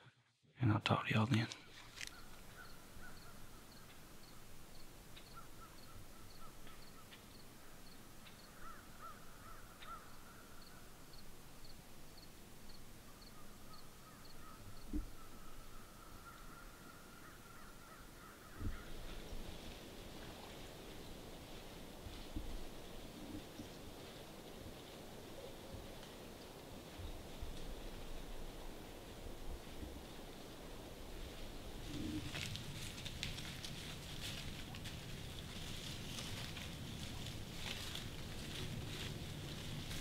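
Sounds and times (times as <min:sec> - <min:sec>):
rustling in leaves: 0:01.6 - 0:40.0
distant bird calls: 0:01.7 - 0:11.3, 0:12.1 - 0:19.5.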